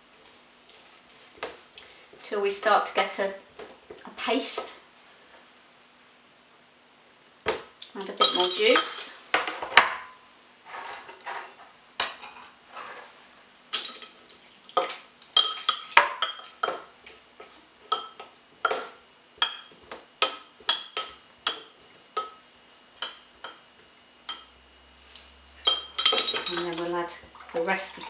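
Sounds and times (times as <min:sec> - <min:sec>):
metal spoon clinking in glass bowl: 0:08.0 - 0:09.0, 0:15.4 - 0:16.9, 0:23.0 - 0:23.6, 0:24.3 - 0:24.5, 0:25.6 - 0:27.0.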